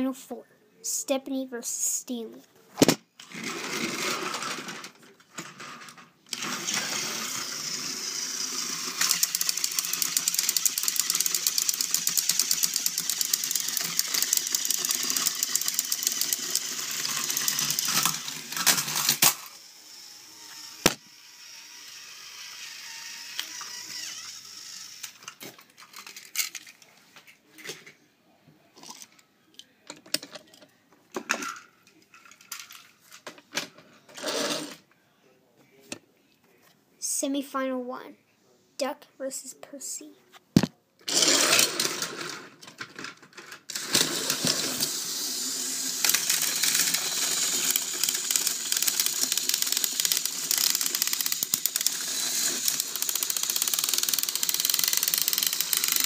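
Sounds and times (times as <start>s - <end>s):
toy train motors buzzing: 3.2s - 26.6s, 41.1s - 56.0s.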